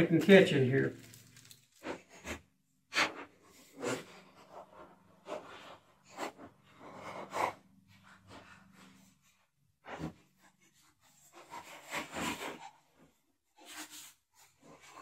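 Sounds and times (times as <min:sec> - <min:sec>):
rustles and knocks of handling: 0:00.2 - 0:02.1.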